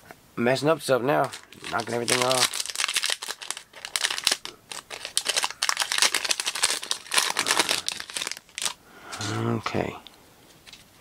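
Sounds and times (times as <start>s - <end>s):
foil wrapper crinkling: 1.2s - 8.8s.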